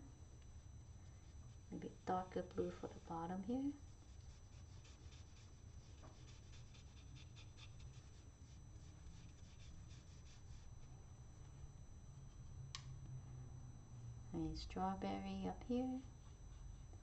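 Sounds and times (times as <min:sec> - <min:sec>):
paintbrush strokes on paper: 0:00.6 - 0:11.6, 0:16.0 - 0:17.0.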